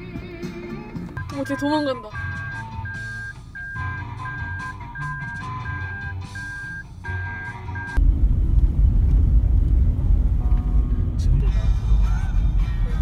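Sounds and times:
background music: 0.0 - 8.0
car driving rumble: 0.7 - 13.0.

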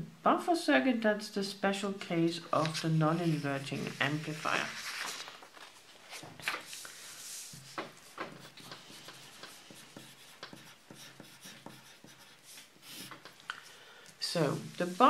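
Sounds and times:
paper rustling: 2.4 - 10.6
pencil writing on paper: 8.3 - 13.4.

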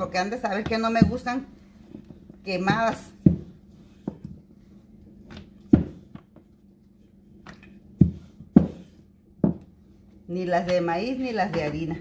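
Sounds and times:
rolling pin knocking on countertop: 0.3 - 4.4, 5.3 - 6.4, 7.4 - 9.7.

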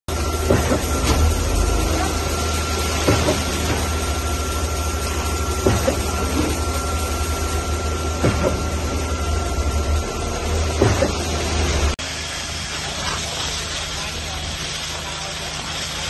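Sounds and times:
concrete pump truck running: 0.1 - 16.0
heavy pump knock: 3.0 - 4.0, 5.6 - 6.6, 8.2 - 8.7, 10.8 - 11.4.

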